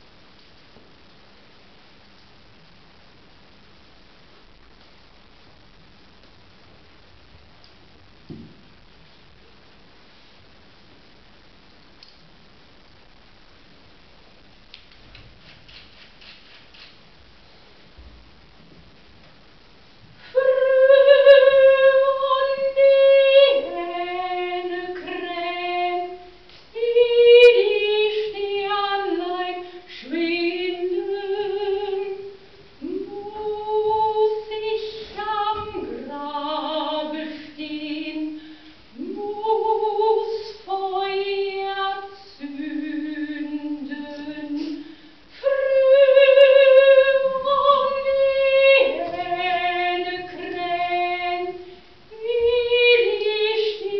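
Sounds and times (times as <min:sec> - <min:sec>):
woman singing unaccompanied: 0:20.2 - 0:53.9.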